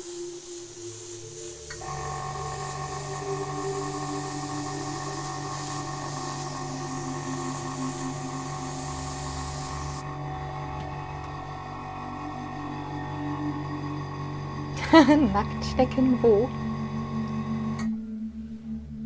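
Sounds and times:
airbrush air hiss: 0.0 - 14.8.

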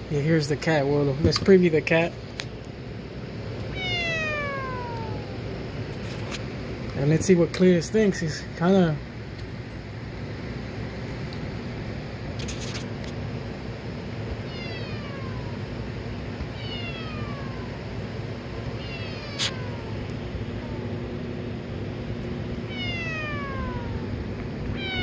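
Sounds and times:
low steady hum: 0.0 - 25.0
synthesized cat meow glides: 3.8 - 5.4, 14.4 - 15.6, 16.5 - 17.8, 22.7 - 24.2, 24.8 - 25.0.

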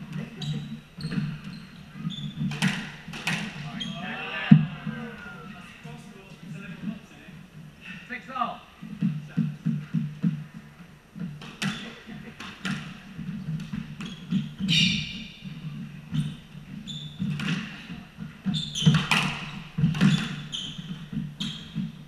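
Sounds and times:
shoes squeaking on wooden floor: 0.0 - 5.5, 8.8 - 22.0
squash ball cracking off rackets: 2.2 - 3.7, 18.4 - 21.9.

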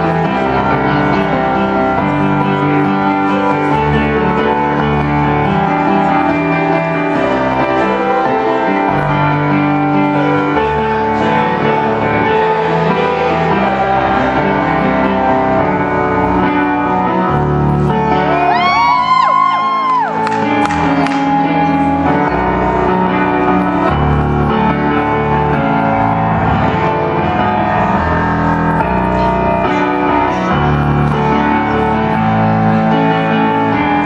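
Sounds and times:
piano chords: 0.0 - 34.0
audience whooping: 18.2 - 20.5.

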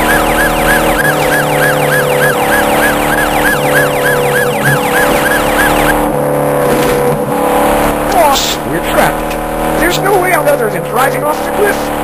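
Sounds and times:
police siren yelp: 0.0 - 6.1
low car engine drone: 0.0 - 12.0.

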